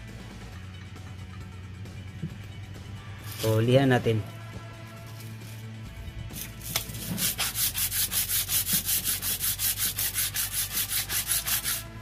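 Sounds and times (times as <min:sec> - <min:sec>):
metal rubbing on sandpaper: 0:06.3 - 0:12.0.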